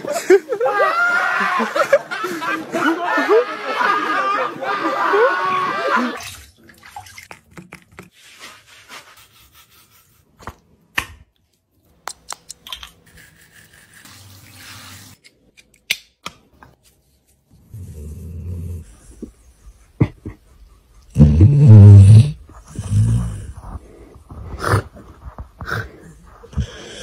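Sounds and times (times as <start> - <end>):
shower water running: 13.7 - 15.2.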